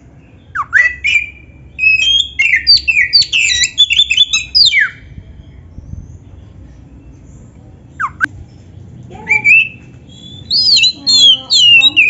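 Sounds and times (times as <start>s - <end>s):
bird singing whistled notes: 0.2s - 6.4s, 8.0s - 8.3s, 9.2s - 12.0s.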